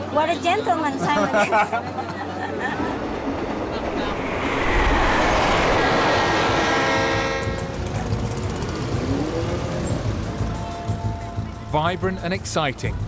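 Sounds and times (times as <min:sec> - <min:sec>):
train rushing along track: 0:01.6 - 0:13.0
short rising tone: 0:02.9 - 0:08.0
train horn: 0:06.6 - 0:08.3.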